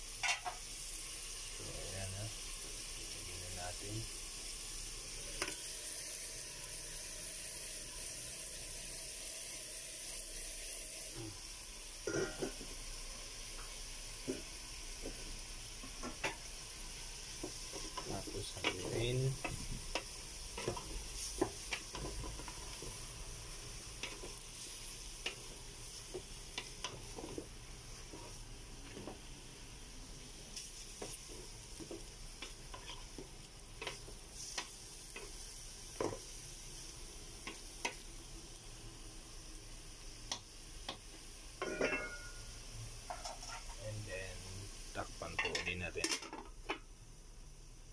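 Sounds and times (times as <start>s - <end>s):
meat sizzling in a pot: 0.0s - 47.9s
wooden spatula scraping a pot: 24.0s - 29.2s, 30.7s - 35.4s, 43.1s - 43.9s.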